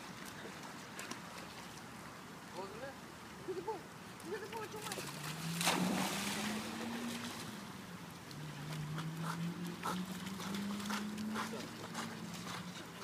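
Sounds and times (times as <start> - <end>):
water sloshing: 4.3 - 13.0
dog splashing into water: 4.8 - 7.5.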